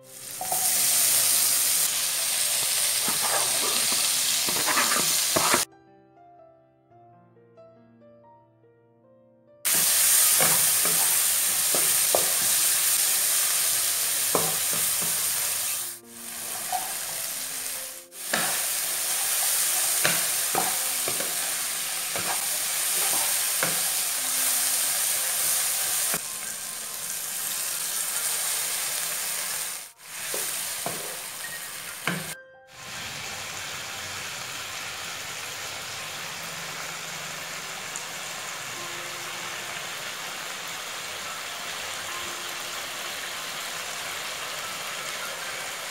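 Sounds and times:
food sizzling in a wok: 0.0 - 5.7, 9.7 - 45.9
spatula scraping a pan: 2.9 - 5.7, 18.2 - 24.1
water simmering in a wok: 32.8 - 45.9.

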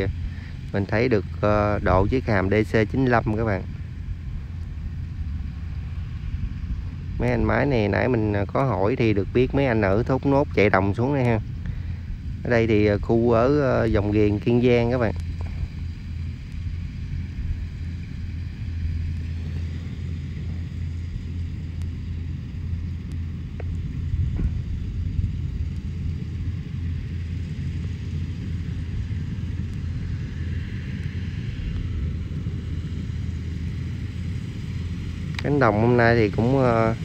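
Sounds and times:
diesel engine rumbling: 0.0 - 37.0
faint clicks: 21.7 - 22.0, 22.8 - 23.8.

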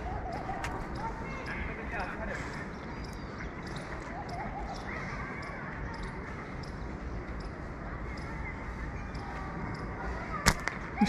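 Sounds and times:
outdoor background noise: 0.0 - 11.0
slingshot band snapping: 10.4 - 10.8.

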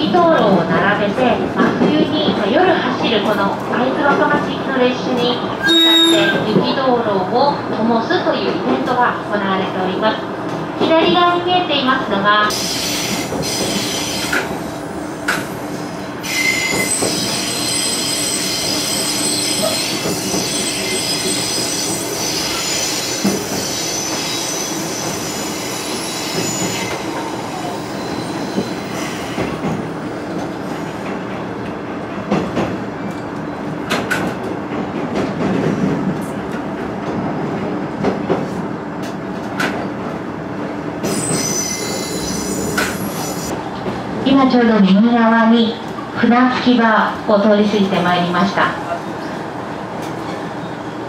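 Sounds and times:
high-pitched wheel squeal: 5.6 - 6.4, 16.2 - 27.0, 41.1 - 43.5.

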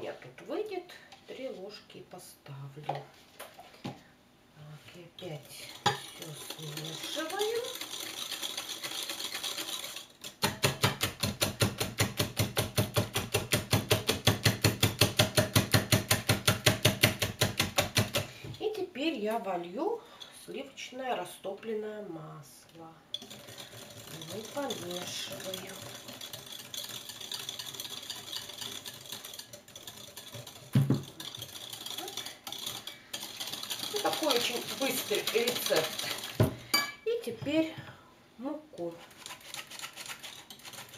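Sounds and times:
whisk clicking against glass bowl: 5.7 - 18.3, 23.1 - 37.0.

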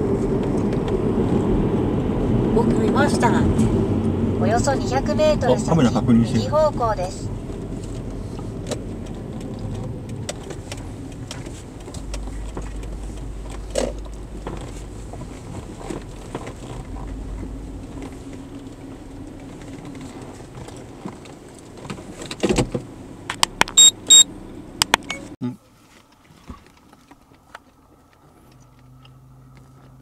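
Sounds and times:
car road and engine rumble: 0.0 - 30.0
sharp clicks: 23.4 - 24.2
short high beeps: 23.7 - 24.3.

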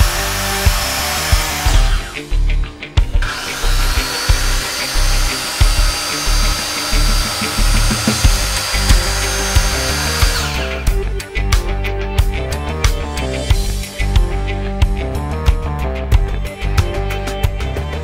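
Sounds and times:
mitre saw motor whining: 0.0 - 2.4, 3.1 - 11.0
background music with a beat: 0.0 - 18.0.

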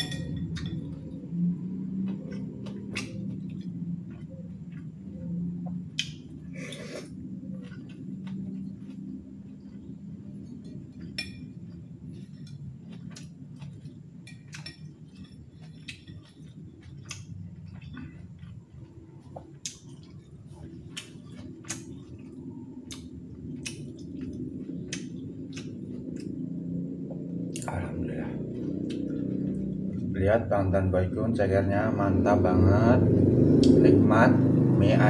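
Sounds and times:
utensil clinking on ceramic bowl: 0.0 - 0.8
chewing and mouth clicks: 0.4 - 27.8, 28.4 - 30.1.

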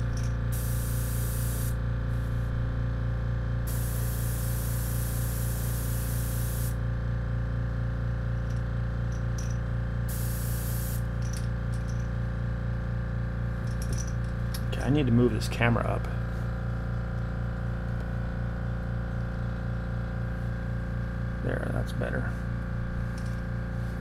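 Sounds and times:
steady low hum: 0.0 - 24.0
airbrush spraying hiss: 0.5 - 2.5, 3.7 - 6.8, 10.1 - 11.1.

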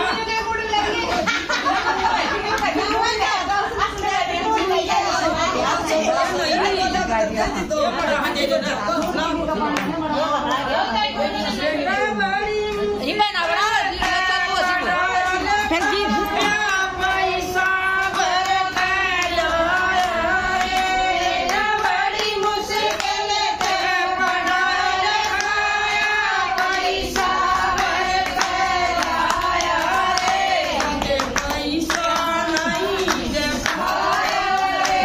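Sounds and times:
women singing a devotional song: 0.0 - 35.0
hands clapping: 13.4 - 35.0.

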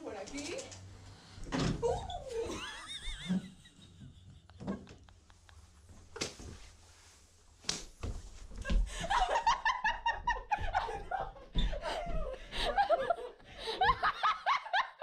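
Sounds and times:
voices and laughter: 1.8 - 5.7, 8.9 - 15.0.

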